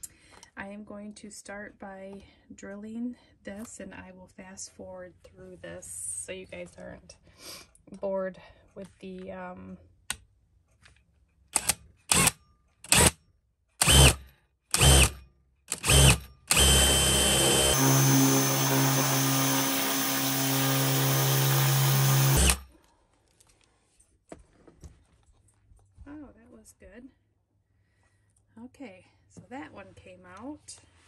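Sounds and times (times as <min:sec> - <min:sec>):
cordless drill motor: 0:13.8 - 0:22.7.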